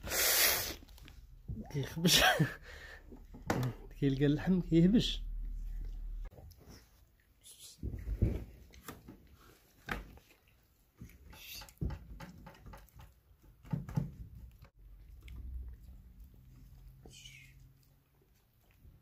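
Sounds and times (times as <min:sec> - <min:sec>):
kittens scrabbling and pawing: 0:07.8 - 0:10.3, 0:10.9 - 0:14.7.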